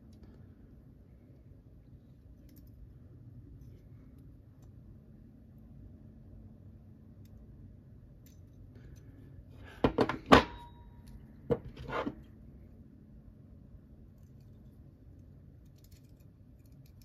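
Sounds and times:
metal parts knocking on wood: 0:09.8 - 0:10.8.

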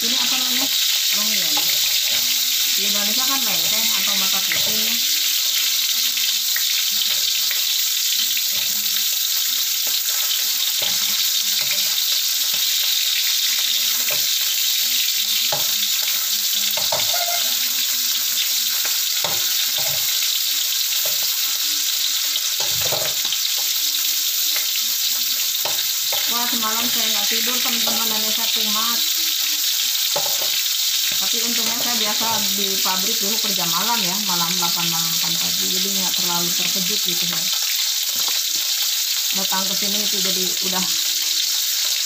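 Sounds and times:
chicken sizzling in oil: 0:00.0 - 0:42.0
spatula scraping a pan: 0:00.7 - 0:17.9.

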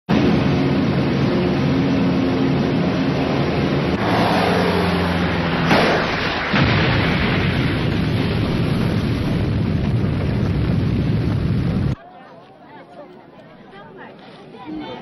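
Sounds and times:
propeller bombers droning: 0:00.1 - 0:12.0
rumbling blast: 0:00.1 - 0:12.0
explosion: 0:03.9 - 0:12.0.

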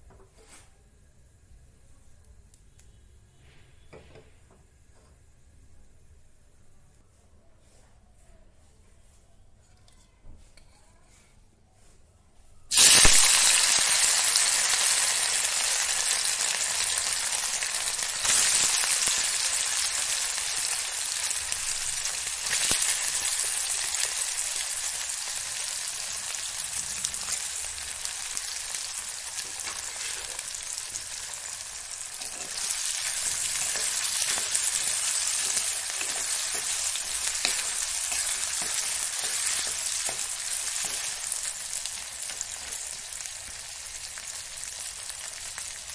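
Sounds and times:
sausage sizzling in hot oil: 0:12.7 - 0:45.9
wooden spatula stirring: 0:32.1 - 0:41.4.

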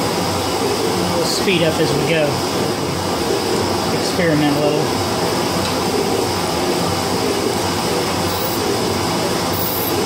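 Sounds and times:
metal shaper running: 0:07.9 - 0:10.0.

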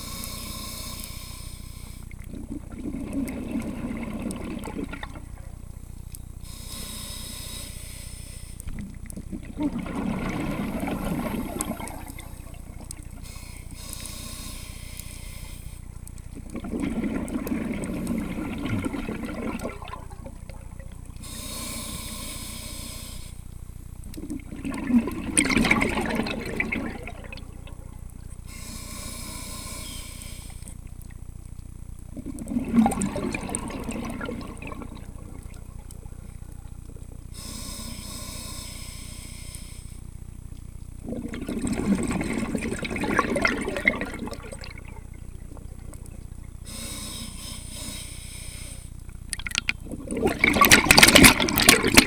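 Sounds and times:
regulator inhale hiss: 0:00.0 - 0:02.3, 0:06.4 - 0:08.9, 0:10.7 - 0:16.3, 0:21.2 - 0:24.2, 0:28.2 - 0:30.9, 0:34.9 - 0:40.3, 0:45.5 - 0:49.1
exhaust bubbles rushing: 0:02.3 - 0:05.6, 0:08.8 - 0:13.2, 0:16.4 - 0:21.1, 0:24.2 - 0:28.0, 0:32.1 - 0:36.4, 0:41.0 - 0:46.5, 0:49.3 - 0:52.0.

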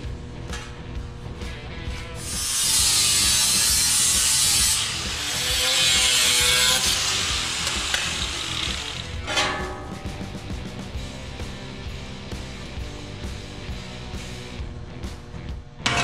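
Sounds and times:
angle grinder cutting steel: 0:02.2 - 0:09.4.

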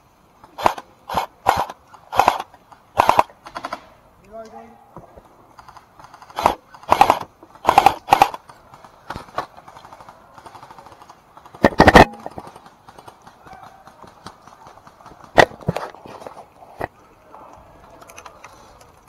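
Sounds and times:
airsoft rifle firing bursts: 0:00.6 - 0:04.0, 0:05.9 - 0:15.8.

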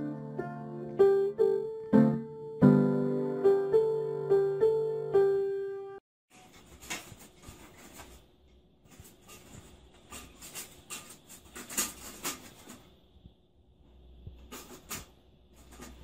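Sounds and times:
window blind slats rattling: 0:08.9 - 0:12.9, 0:14.4 - 0:16.0.

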